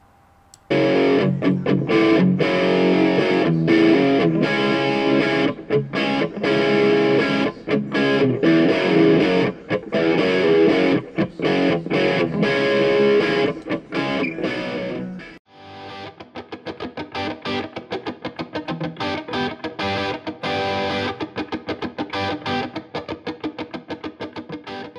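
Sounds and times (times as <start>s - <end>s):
guitar music: 0.6s - 24.9s.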